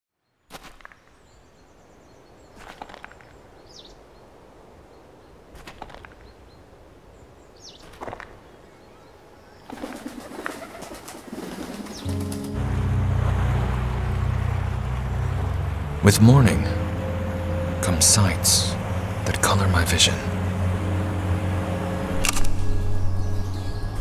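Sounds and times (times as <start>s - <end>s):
pigeon wings flapping: 9.7s - 12.6s.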